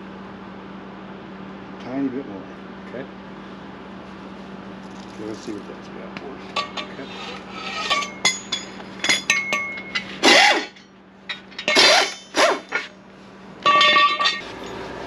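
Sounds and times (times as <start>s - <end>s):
loud metal creaks: 11.4s - 12.9s.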